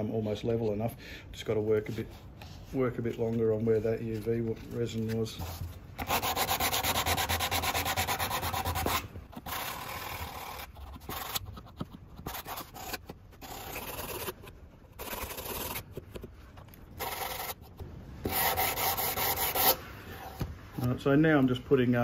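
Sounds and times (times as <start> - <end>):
sandpaper rubbing back and forth: 4.1 - 16.0, 16.9 - 20.4.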